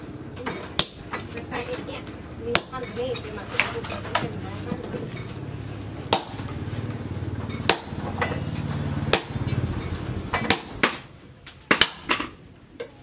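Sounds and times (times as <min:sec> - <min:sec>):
steady low hum: 0:00.0 - 0:12.7
hammer striking metal tool: 0:00.8 - 0:01.2, 0:07.6 - 0:08.4, 0:09.1 - 0:11.0.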